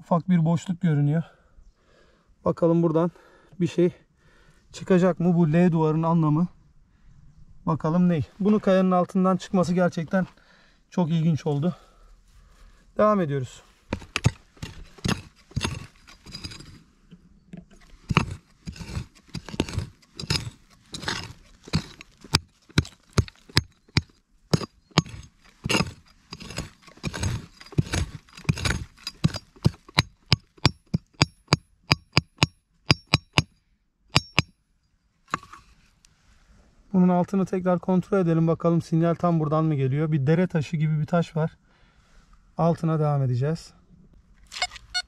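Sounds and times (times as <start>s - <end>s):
blade clinking on pebbles: 13.9s - 16.8s, 18.0s - 33.5s.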